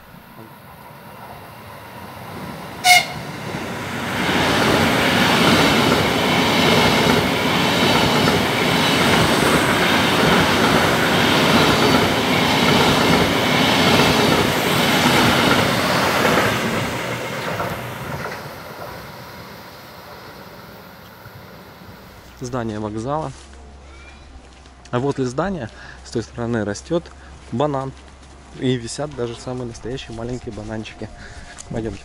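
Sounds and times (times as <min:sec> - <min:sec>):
train passing on rails: 0:00.0 - 0:23.8.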